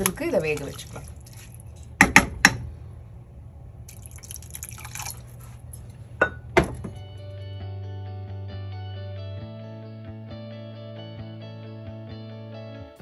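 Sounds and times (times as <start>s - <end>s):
wooden spoon stirring wet food: 0.0s - 2.0s
background music: 6.9s - 13.0s.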